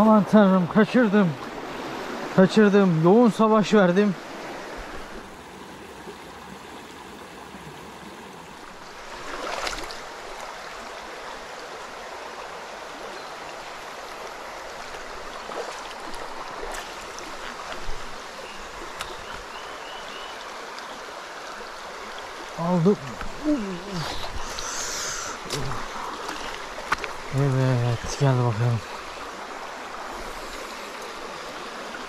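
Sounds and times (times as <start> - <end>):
stream running over stones: 0.0 - 32.0.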